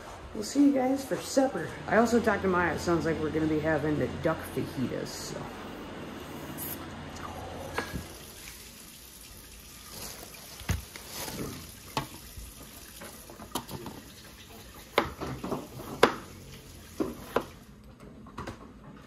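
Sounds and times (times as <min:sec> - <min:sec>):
tap water running into sink: 0:07.8 - 0:17.7.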